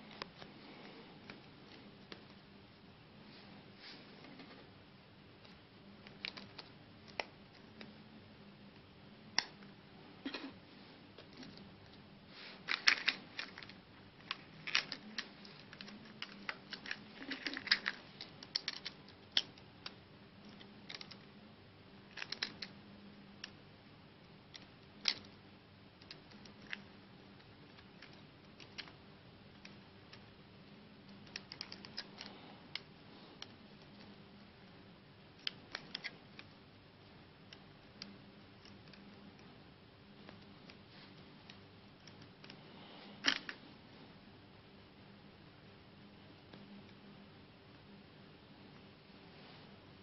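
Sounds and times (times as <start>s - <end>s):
plastic phone parts clicking: 12.7s - 21.3s, 22.1s - 22.7s, 24.5s - 25.4s, 31.2s - 34.1s, 43.2s - 43.6s.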